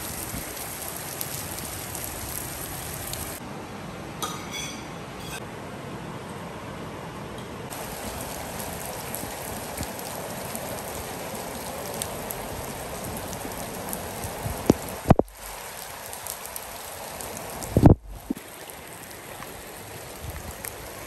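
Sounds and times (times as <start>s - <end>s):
rain splashing on paving: 0.0s - 3.4s, 7.7s - 21.0s.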